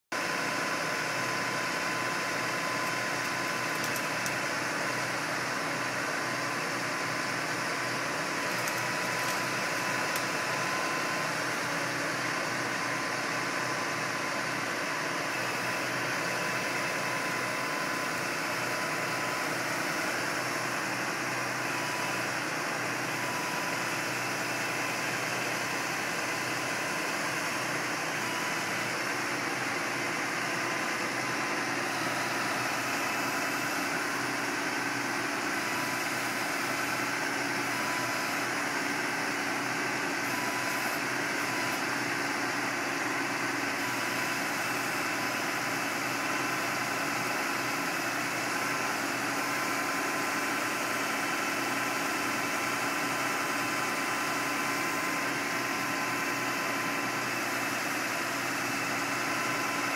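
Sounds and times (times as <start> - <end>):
high hydraulic whine: 0.2 - 59.9
truck engine running: 0.2 - 59.9.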